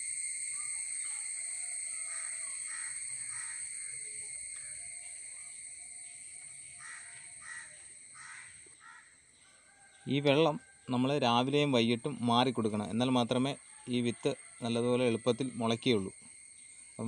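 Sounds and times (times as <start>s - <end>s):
insects droning: 0.0s - 17.0s
crows cawing: 2.1s - 3.7s, 6.8s - 9.2s.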